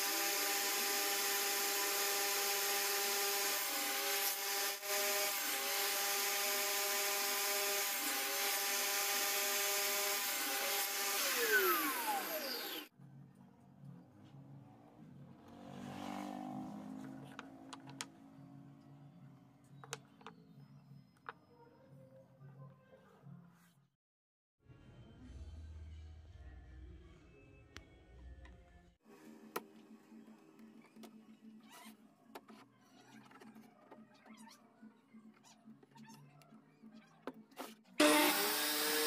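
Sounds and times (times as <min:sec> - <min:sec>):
table saw whirring: 0:00.0 - 0:12.9, 0:38.0 - 0:39.0.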